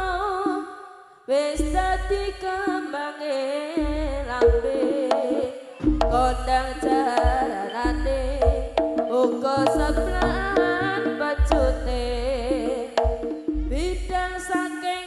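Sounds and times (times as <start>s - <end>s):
drums with deep booms: 3.8s - 14.5s.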